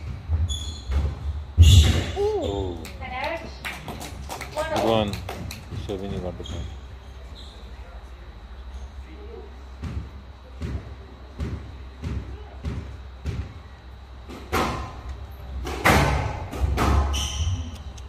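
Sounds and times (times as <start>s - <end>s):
squash ball bouncing on floor: 9.8s - 13.6s
ball hitting glass court walls: 9.8s - 17.9s.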